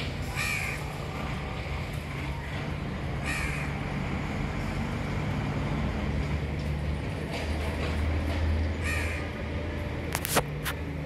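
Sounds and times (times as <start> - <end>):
harsh bird calls: 3.1 - 3.9.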